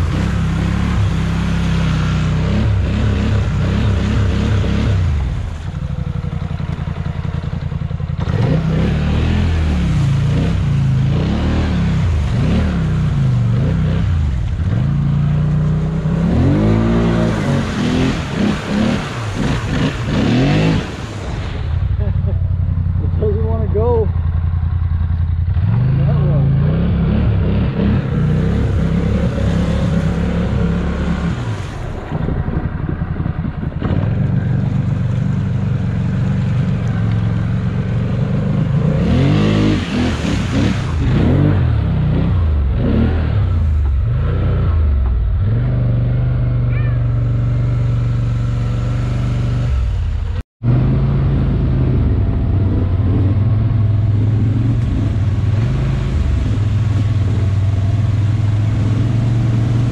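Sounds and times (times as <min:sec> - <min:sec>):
atv engines revving: 0:00.0 - 0:59.9.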